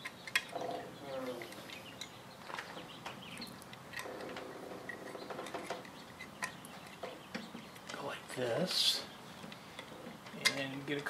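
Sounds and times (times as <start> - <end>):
small parts clicking and tapping: 0.0 - 0.7, 1.4 - 8.0, 9.4 - 11.0.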